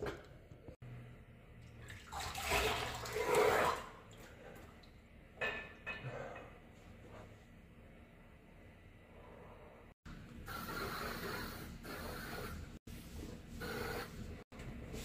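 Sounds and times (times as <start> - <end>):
water splashing at washbasin: 1.6 - 5.0.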